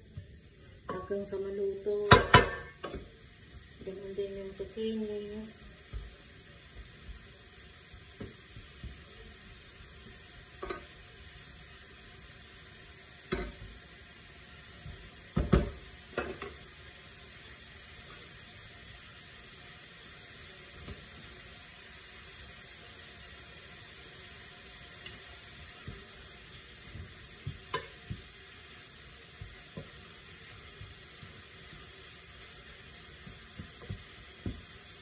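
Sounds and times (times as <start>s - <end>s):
zucchini sizzling in a pan: 0.0s - 35.0s
spatula knocking and scraping pan: 0.9s - 3.1s, 10.6s - 11.0s, 13.3s - 13.8s, 14.8s - 16.6s, 25.1s - 34.9s.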